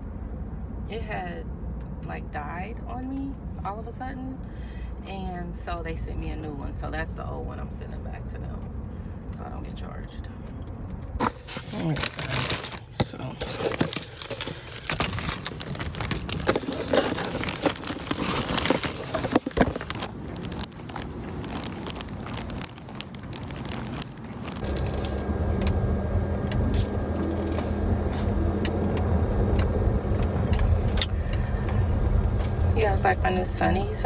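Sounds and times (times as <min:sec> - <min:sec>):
car engine hum and road noise: 0:00.0 - 0:34.0
plastic bag crinkling: 0:11.5 - 0:25.1.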